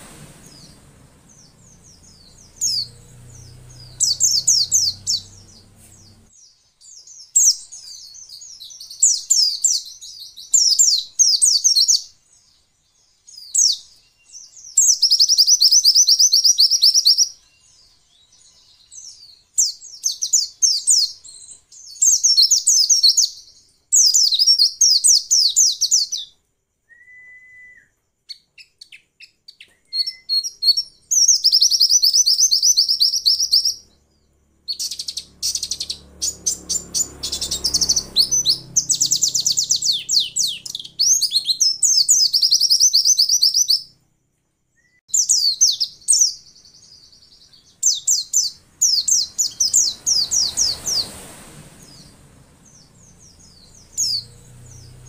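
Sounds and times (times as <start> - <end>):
bird twittering trills: 0.0 - 26.3, 26.9 - 43.9, 44.8 - 55.0
faint short whistle: 26.8 - 28.0, 29.6 - 30.4, 44.8 - 45.0.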